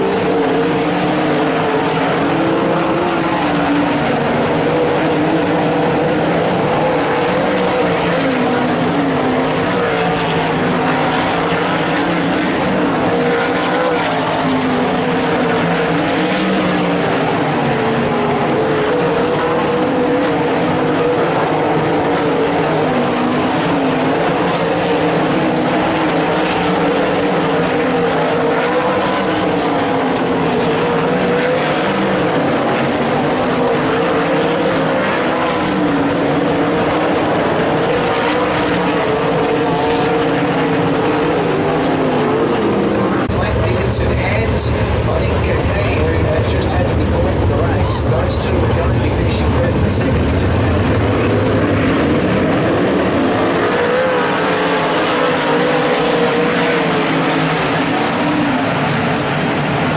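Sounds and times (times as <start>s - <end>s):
racing car engines: 0.0s - 59.9s.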